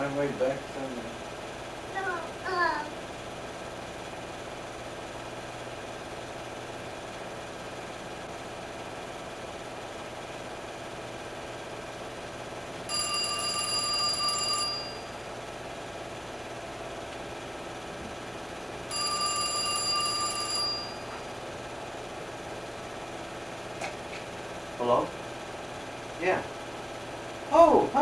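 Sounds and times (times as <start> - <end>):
telephone ringing: 12.9 - 15.4, 18.9 - 21.3.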